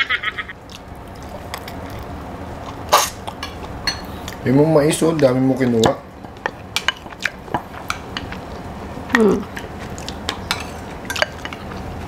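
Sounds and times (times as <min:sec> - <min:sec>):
utensils clinking on bowls: 0:03.4 - 0:04.1, 0:10.5 - 0:11.6.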